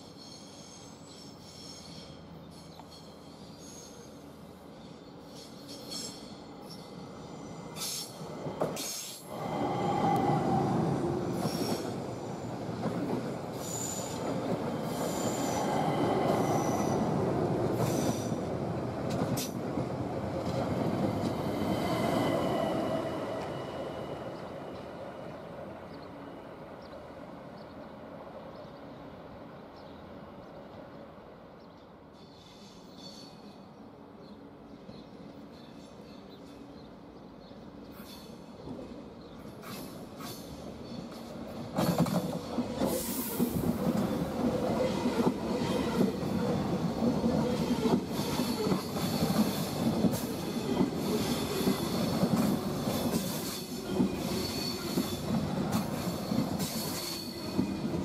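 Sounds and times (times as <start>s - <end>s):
train wheels squealing: 0.0s - 18.6s, 32.0s - 33.8s, 37.8s - 58.0s.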